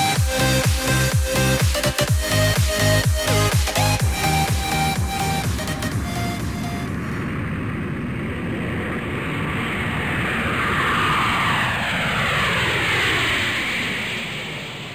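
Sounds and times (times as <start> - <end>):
electronic music: 0.0 - 7.4
rushing noise sweeping down: 0.0 - 14.9.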